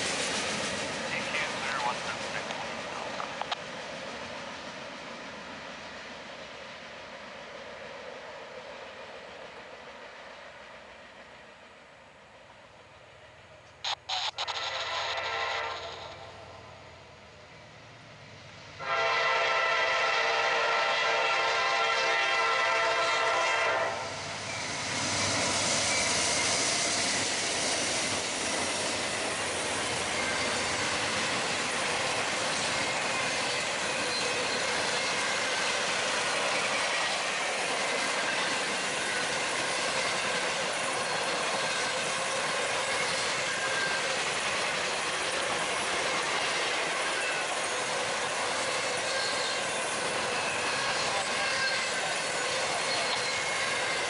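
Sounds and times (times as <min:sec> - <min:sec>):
train wheels rushing on rails: 0:00.0 - 0:54.0
train air horn blast: 0:14.4 - 0:16.4, 0:18.8 - 0:24.1.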